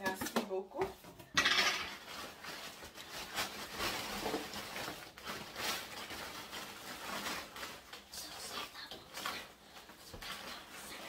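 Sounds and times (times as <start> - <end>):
plastic bag rustling: 0.5 - 11.0.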